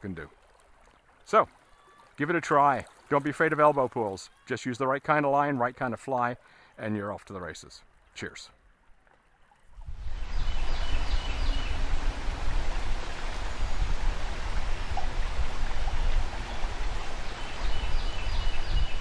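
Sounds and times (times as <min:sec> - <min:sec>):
wind rumble on microphone: 0:09.8 - 0:19.0
river water rushing: 0:09.9 - 0:19.0.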